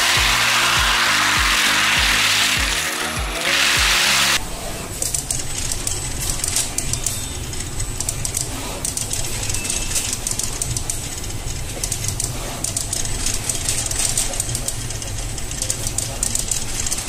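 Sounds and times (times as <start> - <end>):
machine clicking and rattling: 5.0 - 17.0.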